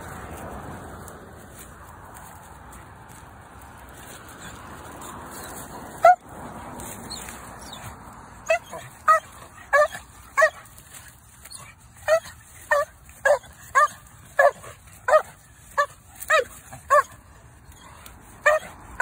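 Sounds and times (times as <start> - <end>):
dog barking high-pitched: 8.4 - 10.6, 11.6 - 17.2, 18.4 - 19.0.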